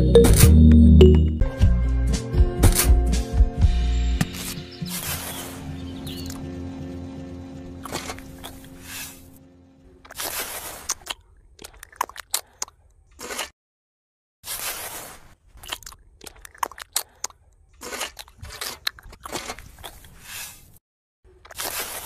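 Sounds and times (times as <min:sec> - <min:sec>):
trowel scraping wet mortar: 0:10.0 - 0:11.1, 0:13.1 - 0:13.6, 0:14.4 - 0:15.4, 0:17.8 - 0:20.8, 0:21.5 - 0:22.0.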